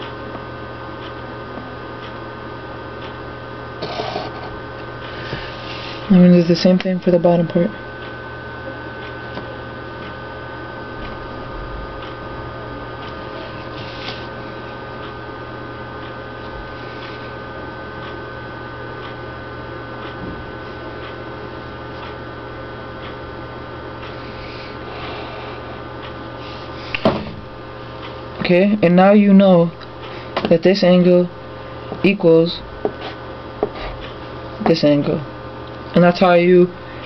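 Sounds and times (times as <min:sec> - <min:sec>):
electrical hum: 0:00.0 - 0:37.0
pencil scratching along ruler: 0:03.8 - 0:04.5.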